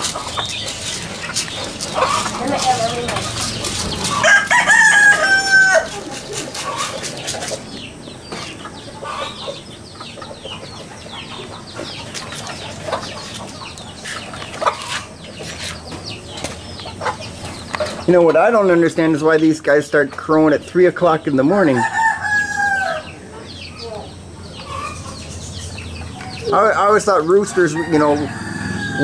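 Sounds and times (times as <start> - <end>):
chickens clucking: 0.0 - 29.0
chicks peeping: 0.0 - 29.0
rooster crowing: 4.0 - 6.1, 21.6 - 23.3, 27.3 - 29.0.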